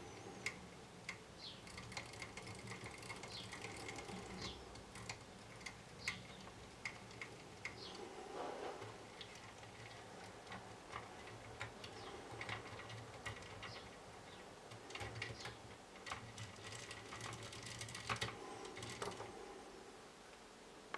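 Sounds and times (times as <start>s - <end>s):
faint low hum: 0.0s - 20.9s
plastic gears clicking: 0.4s - 7.9s, 14.7s - 19.3s.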